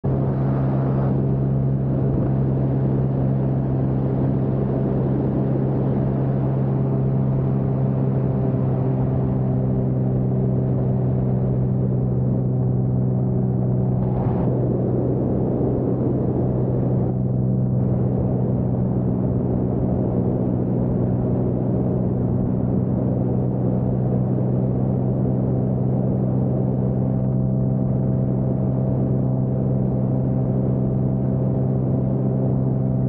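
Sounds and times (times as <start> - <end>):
propeller aircraft engine droning: 0.0 - 33.0
rushing air: 13.0 - 20.4.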